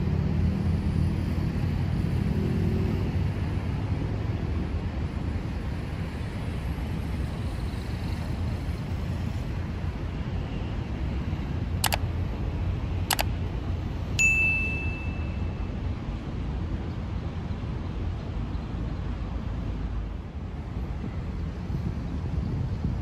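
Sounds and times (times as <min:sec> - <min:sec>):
outdoor city ambience rumble: 0:00.0 - 0:23.0
mouse clicks: 0:11.8 - 0:12.0, 0:13.1 - 0:13.3
bright bell ding: 0:14.2 - 0:15.6.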